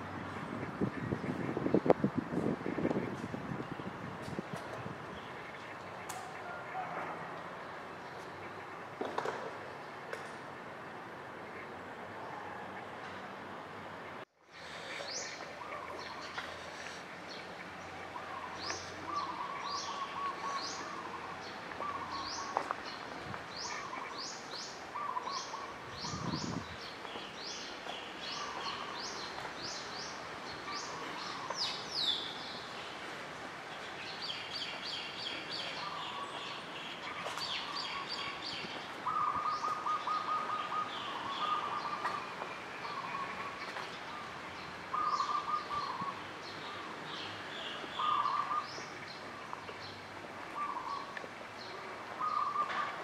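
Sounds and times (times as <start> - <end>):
small birds chirping: 14.5 - 33.1, 33.7 - 52.8.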